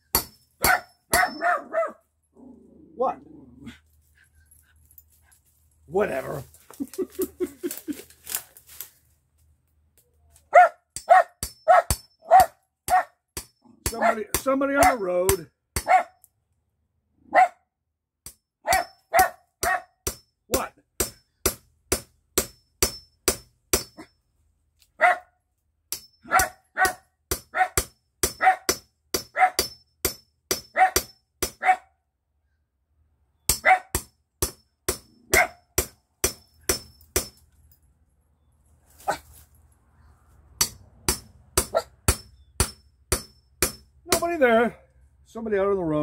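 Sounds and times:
hammer striking chisel into wood: 0.1 - 1.4, 11.0 - 16.0, 18.2 - 24.1, 25.9 - 31.6, 33.5 - 37.4, 40.6 - 44.3
small dog barking: 0.6 - 2.0, 10.5 - 13.1, 15.8 - 16.2, 17.3 - 17.6, 18.7 - 19.9, 25.0 - 25.3, 26.3 - 27.8, 28.4 - 28.7, 29.4 - 29.6, 30.8 - 31.0, 31.6 - 31.9, 33.6 - 33.9, 35.3 - 35.6.

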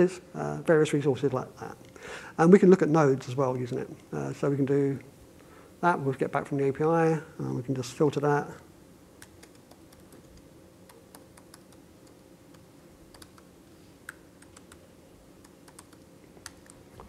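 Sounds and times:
laptop keyboard typing clicks: 15.4 - 16.8.

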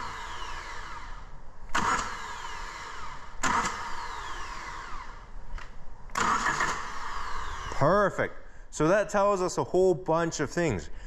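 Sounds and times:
starter motor cranking engine: 0.0 - 5.3, 6.1 - 7.8.

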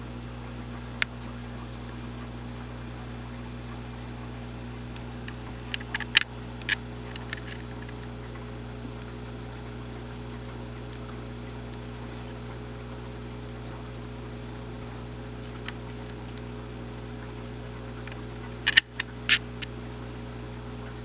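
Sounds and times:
low hum: 0.0 - 21.0
sharp clicks: 18.0 - 19.7.

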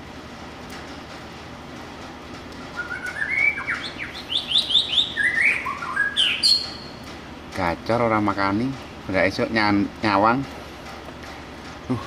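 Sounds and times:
steady background hiss: 0.0 - 12.0
bird singing whistled notes: 2.6 - 7.0.

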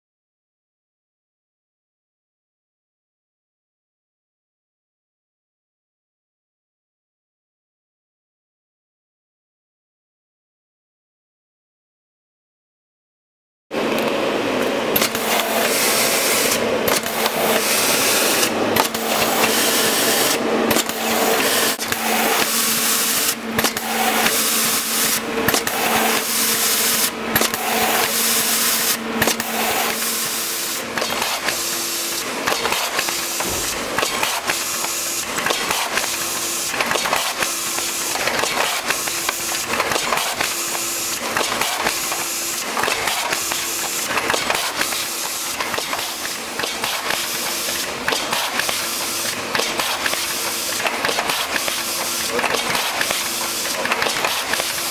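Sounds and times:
labelling machine running: 13.8 - 54.9.

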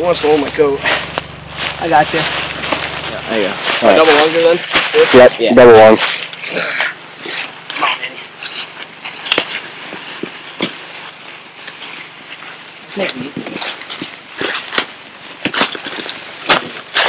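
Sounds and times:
indistinct voices: 0.0 - 9.6
rustling: 0.0 - 17.0.

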